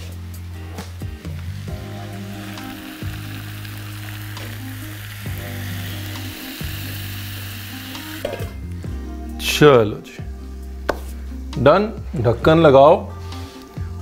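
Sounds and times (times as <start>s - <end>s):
food sizzling in oil: 0.0s - 8.6s.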